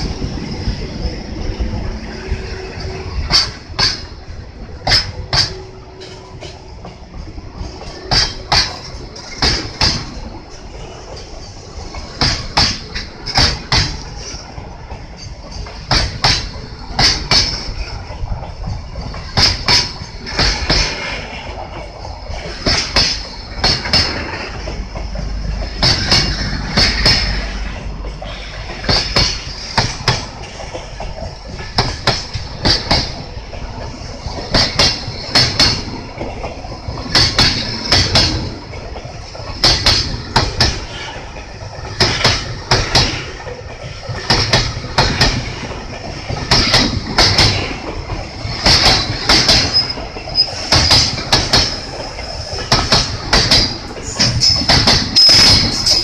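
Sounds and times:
train wheels clicking over rail joints: 0.0 - 56.0.

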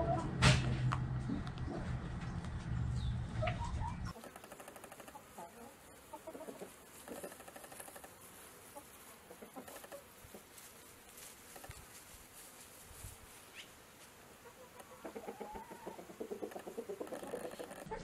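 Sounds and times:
chickens clucking: 0.0 - 0.4, 3.0 - 10.7, 14.4 - 18.0.

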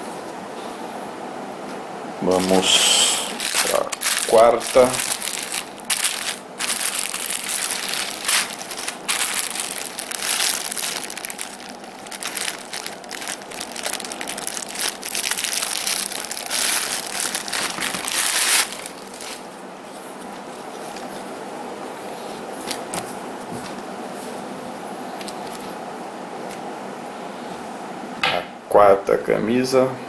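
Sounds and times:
plastic bag crinkling: 2.3 - 19.5.

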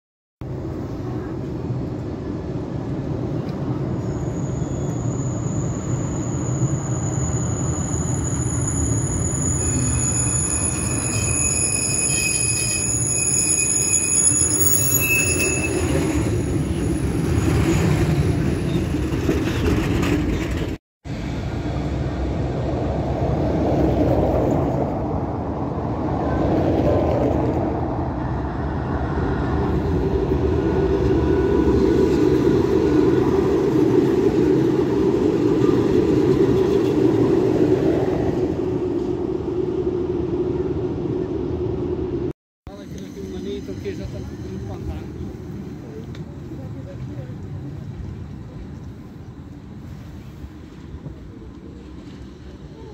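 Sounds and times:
tram rumbling: 0.4 - 52.9
high steady tones: 4.8 - 17.7.

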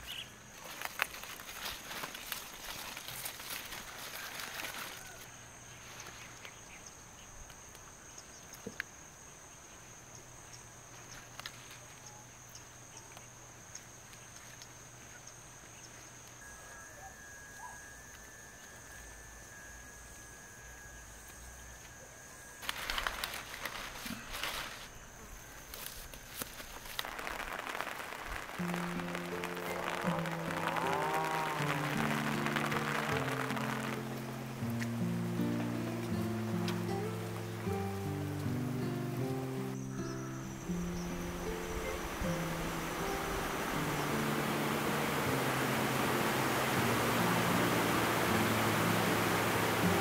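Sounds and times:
leaves rustling in a wicker basket: 0.0 - 6.7, 10.9 - 12.0, 22.6 - 38.6, 40.7 - 50.0
high-pitched insect trill: 0.0 - 50.0.

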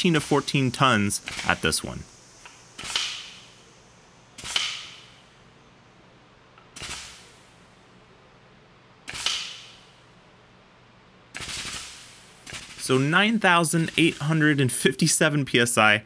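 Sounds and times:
sharp metallic cracks: 0.0 - 3.8, 4.4 - 5.3, 6.6 - 7.6, 9.0 - 10.0, 11.3 - 14.6
faint steady hum: 0.0 - 16.0.

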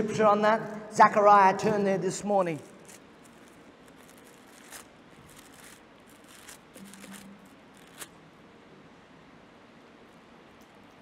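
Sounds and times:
pages turning: 2.5 - 8.2.

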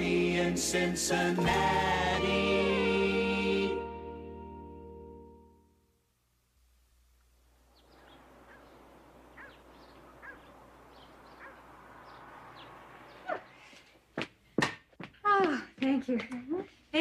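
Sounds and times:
small bird chirping: 7.6 - 13.8.

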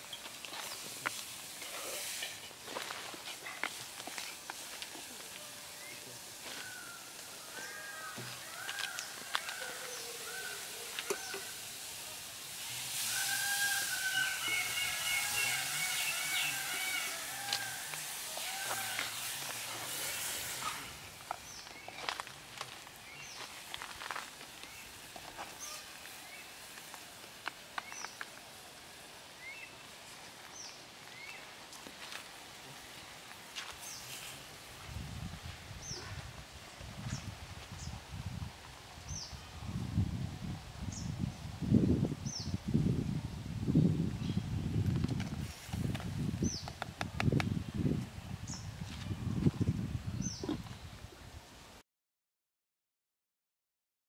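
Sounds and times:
hiss: 0.0 - 21.6, 22.6 - 31.6, 32.2 - 36.6
birds chirping: 13.3 - 19.3, 50.1 - 51.0.

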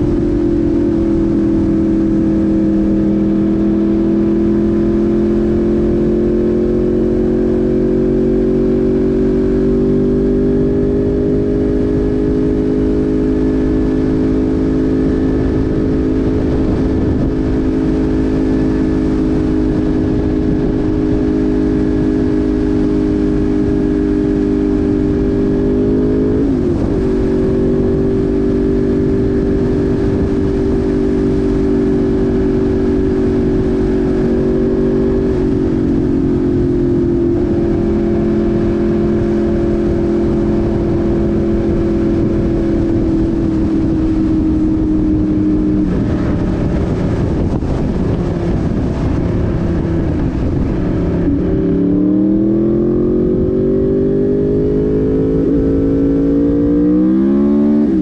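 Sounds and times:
motorcycle engine running: 0.0 - 58.0
wind and road noise: 0.0 - 58.0.

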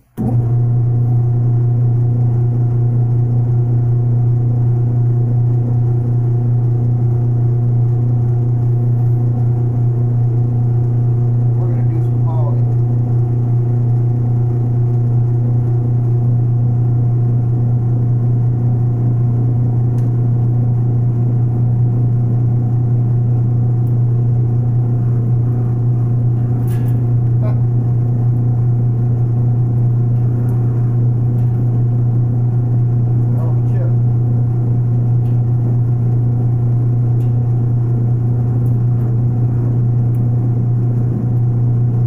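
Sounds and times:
metal lathe humming: 18.5 - 42.0.

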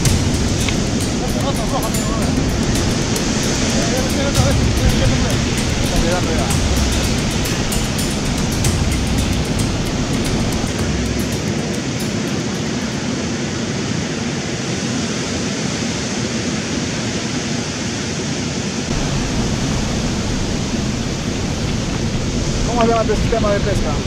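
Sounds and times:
deep low rumble: 0.0 - 11.7
surf on pebble beach: 0.0 - 24.0.

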